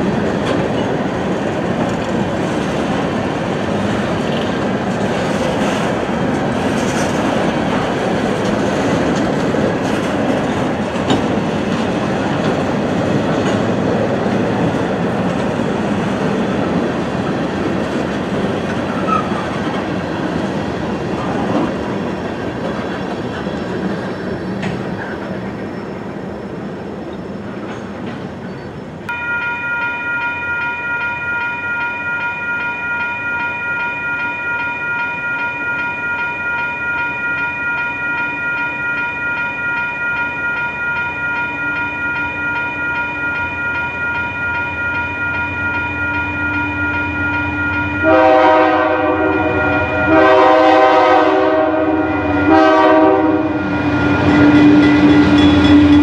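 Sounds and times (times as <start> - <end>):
railroad crossing bell ringing: 0.0 - 22.1, 29.1 - 56.0
train running on rails: 0.0 - 56.0
locomotive horn blasts: 48.0 - 55.6.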